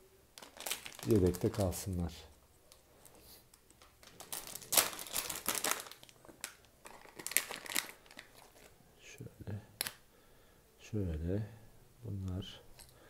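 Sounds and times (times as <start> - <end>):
plastic bag crinkling: 0.4 - 8.8.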